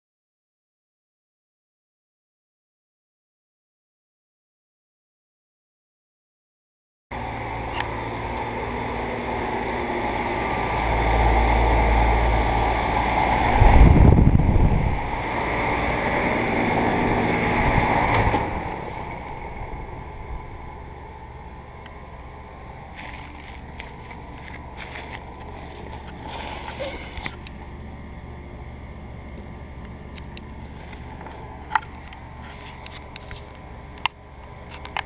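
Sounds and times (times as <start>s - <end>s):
air conditioner humming: 7.1s - 35.0s
fan blowing air: 7.1s - 35.0s
wind buffeting microphone: 11.2s - 20.8s.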